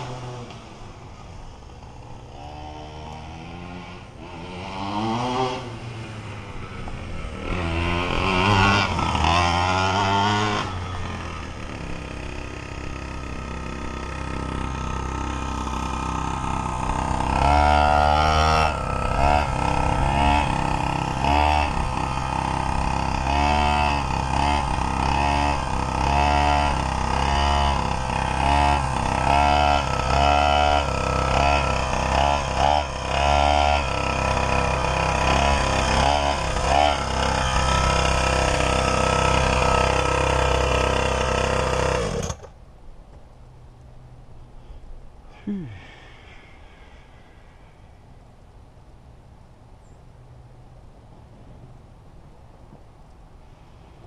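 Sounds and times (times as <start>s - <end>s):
small two-stroke engine revving: 0.0s - 42.6s.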